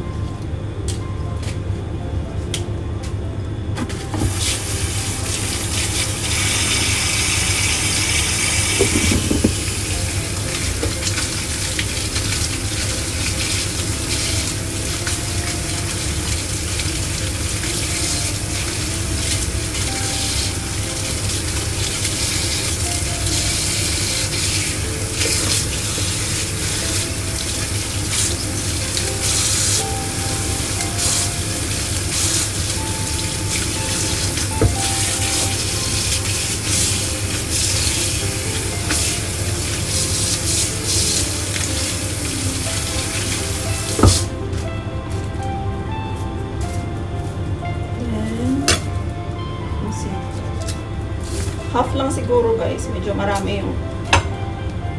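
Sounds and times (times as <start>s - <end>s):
tap water splashing into sink: 7.9s - 9.8s.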